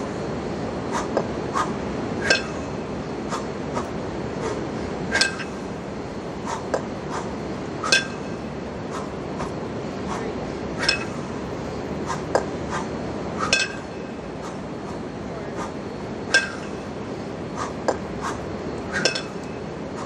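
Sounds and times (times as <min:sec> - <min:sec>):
steady background hum: 0:00.0 - 0:20.0
kettlebells clinking: 0:02.2 - 0:02.8, 0:05.1 - 0:05.7, 0:07.8 - 0:08.5, 0:10.8 - 0:11.3, 0:13.4 - 0:14.2, 0:16.3 - 0:16.9, 0:18.9 - 0:19.6.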